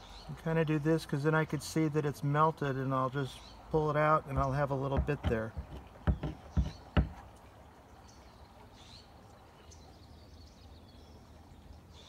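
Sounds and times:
sharp taps: 4.3s - 7.2s.

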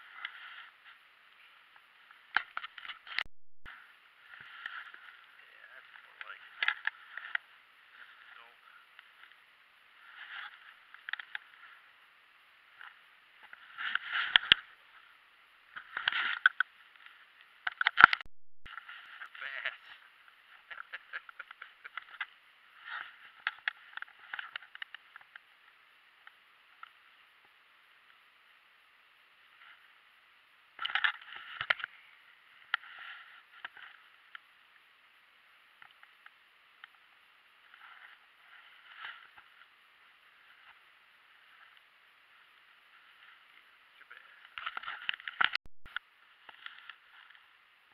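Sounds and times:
rustling and clicking handling noise: 10.1s - 11.8s, 20.6s - 25.6s, 30.8s - 32.0s, 44.4s - 47.6s.

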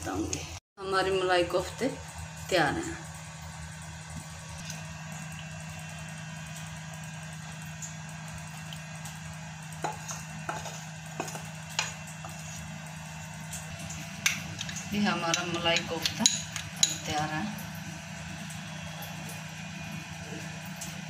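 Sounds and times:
wooden spatula scraping metal pan: 9.9s - 11.4s.

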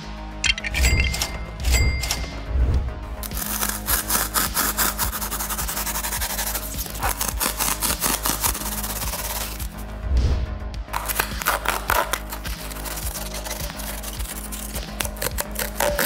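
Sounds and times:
background music: 0.0s - 16.0s
hand saw rasping through foam: 3.3s - 9.8s, 11.0s - 16.0s.

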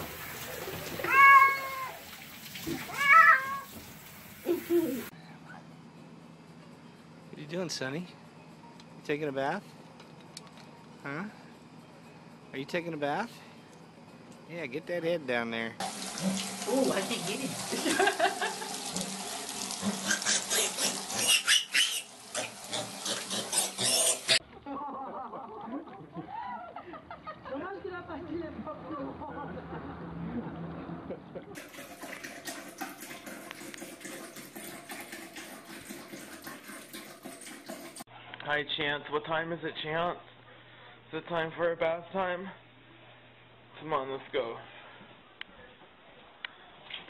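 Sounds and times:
shower water spraying: 0.0s - 5.1s, 15.8s - 24.4s
cat meowing loudly: 1.0s - 2.0s, 2.9s - 3.8s
piglet squealing: 20.0s - 24.4s.

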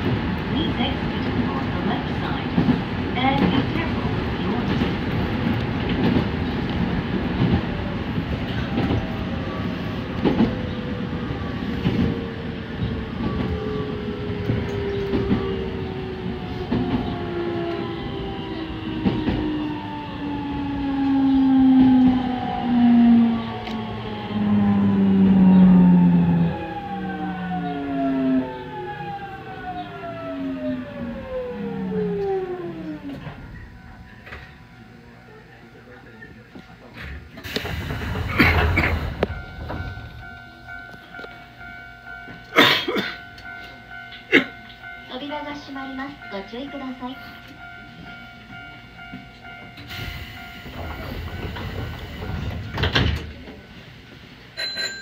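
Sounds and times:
electric train motors whining: 13.2s - 35.1s
air hiss of train doors: 37.4s - 39.3s, 49.8s - 53.9s.

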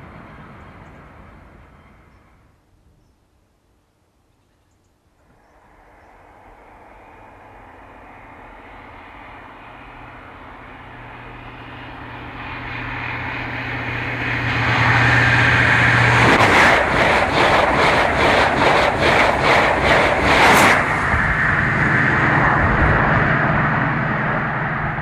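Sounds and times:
rushing rail noise: 0.0s - 2.6s, 5.2s - 25.0s
train engine drone: 0.0s - 2.8s, 5.2s - 25.0s
wheels beating over rails: 5.6s - 25.0s.

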